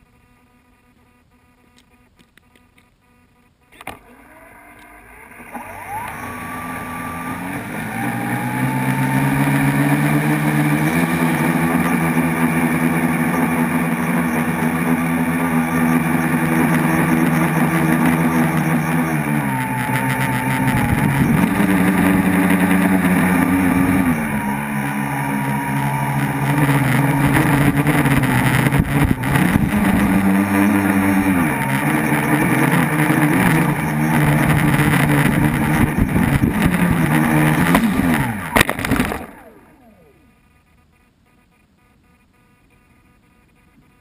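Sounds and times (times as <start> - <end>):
drone propellers buzzing: 0.0 - 44.0.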